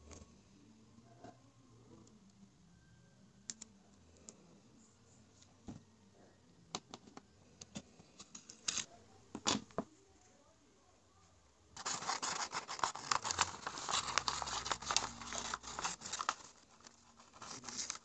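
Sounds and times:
tape clicks and crinkles: 0:06.8 - 0:09.6, 0:11.8 - 0:18.0
paper being handled: 0:11.8 - 0:18.0.

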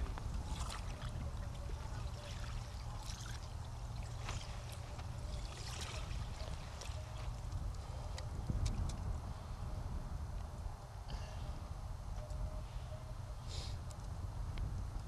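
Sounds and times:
water splashing and trickling: 0:00.0 - 0:07.7
steady low rumble: 0:00.0 - 0:15.0.

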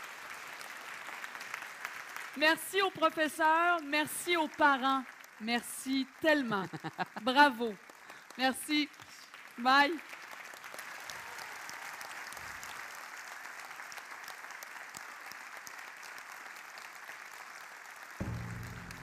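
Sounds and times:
large audience applauding: 0:00.0 - 0:19.0
music: 0:18.2 - 0:19.0.

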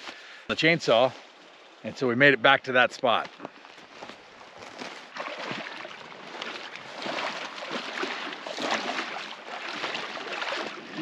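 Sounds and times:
river water splashing and rushing: 0:04.4 - 0:11.0.

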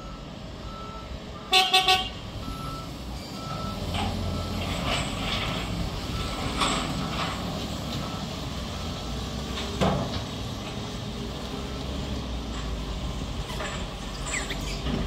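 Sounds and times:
diesel engines running: 0:00.0 - 0:15.0.

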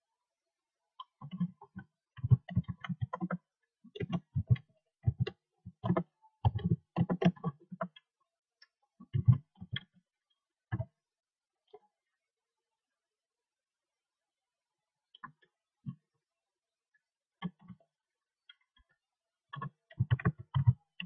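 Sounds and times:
computer keyboard typing: 0:04.0 - 0:08.0.

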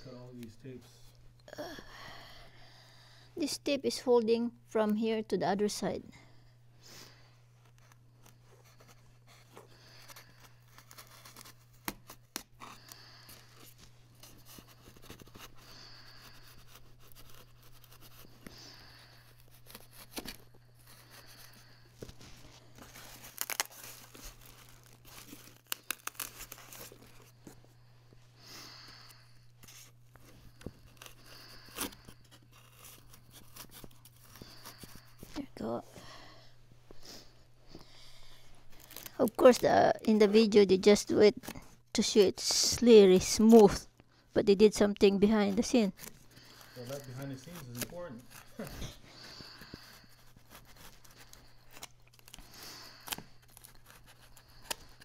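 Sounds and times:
packing tape tearing and scraping: 0:07.6 - 0:27.6, 0:28.7 - 0:35.7, 0:38.3 - 0:43.8, 0:45.2 - 0:55.0.

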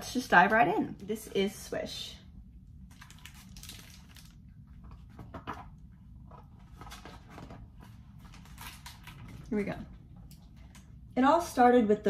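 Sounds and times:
low room hum: 0:00.0 - 0:12.0
book pages rustling: 0:03.1 - 0:09.4.

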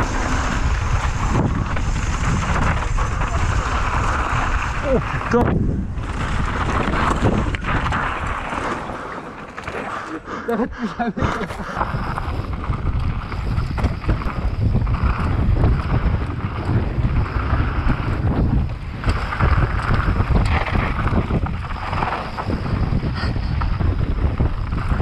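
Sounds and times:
wind rushing over microphone: 0:00.0 - 0:09.1, 0:10.2 - 0:25.0
mountain bike rolling and clattering: 0:00.0 - 0:10.4, 0:11.0 - 0:25.0.

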